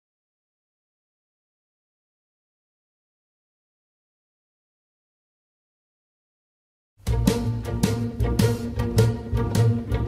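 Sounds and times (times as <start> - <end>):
sharp drum strokes: 7.0 - 10.0
string orchestra sustained notes: 7.0 - 10.0.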